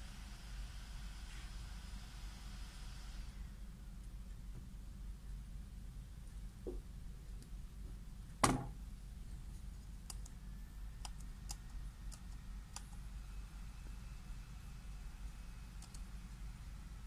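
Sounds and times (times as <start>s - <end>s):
steady low hum: 0.0s - 17.0s
thump: 8.4s - 8.8s
laptop keyboard keys clicking: 10.0s - 10.4s, 11.0s - 13.0s, 15.8s - 16.1s.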